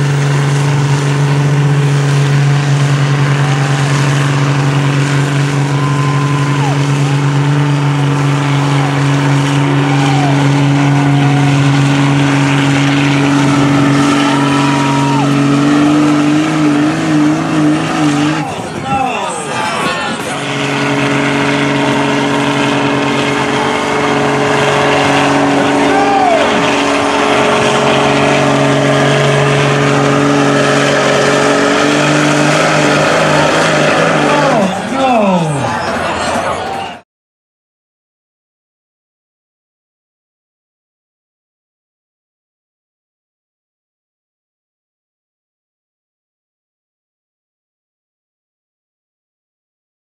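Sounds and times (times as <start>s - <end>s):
diesel truck engine at high revs: 0.0s - 37.0s.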